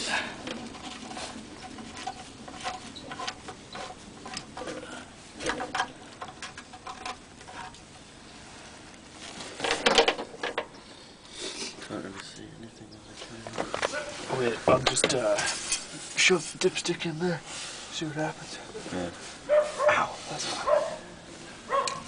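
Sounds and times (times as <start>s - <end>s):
scraping: 0.0s - 11.0s.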